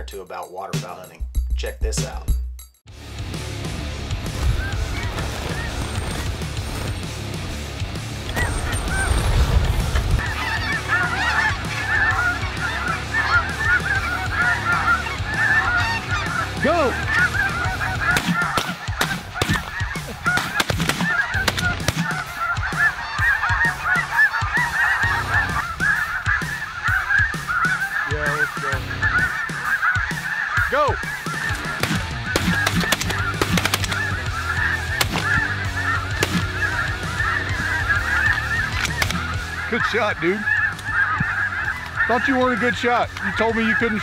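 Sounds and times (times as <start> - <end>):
geese honking: 3.5 - 44.0
shotgun blasts: 31.8 - 34.1.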